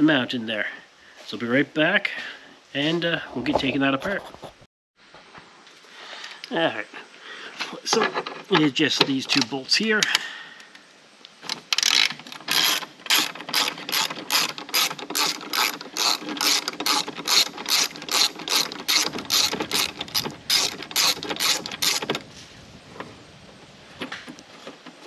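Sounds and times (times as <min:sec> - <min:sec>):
hand ratchet clicking: 0:11.5 - 0:22.2.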